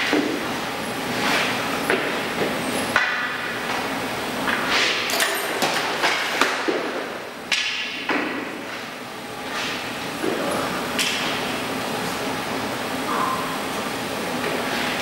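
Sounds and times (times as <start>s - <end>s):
pucks striking pads and surface: 0.0s - 0.4s, 1.9s - 3.4s, 5.6s - 8.8s.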